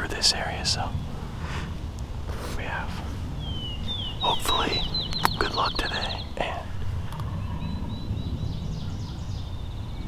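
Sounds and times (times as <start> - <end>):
songbird whistles and trill: 3.4 - 6.4
sharp click: 5.1 - 5.4.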